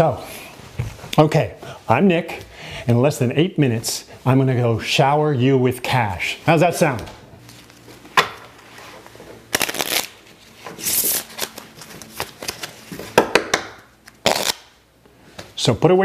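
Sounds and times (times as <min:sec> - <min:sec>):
playing cards shuffling: 0:07.5 - 0:13.2, 0:14.0 - 0:14.7.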